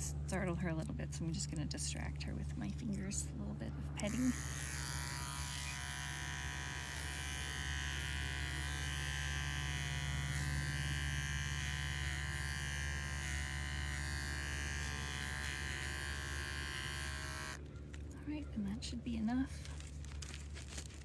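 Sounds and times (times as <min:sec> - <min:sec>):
electric pet clippers buzzing: 0:04.0 - 0:17.6.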